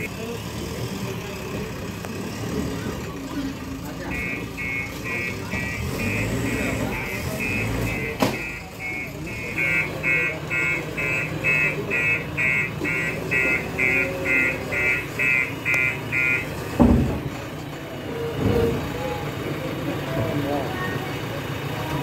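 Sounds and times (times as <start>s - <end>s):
backhoe loader engine running: 0.0s - 22.0s
electronic warning alarm beeping: 4.0s - 16.6s
heavy thud: 16.8s - 17.4s.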